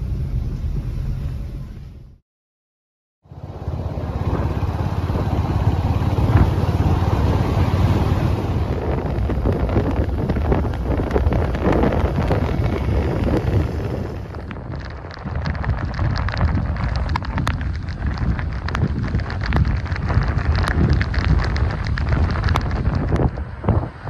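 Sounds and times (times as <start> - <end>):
low road rumble: 0.0 - 2.2, 3.2 - 24.0
wind rumbling on microphone: 3.3 - 24.0
heavy rain drops ticking: 8.6 - 24.0.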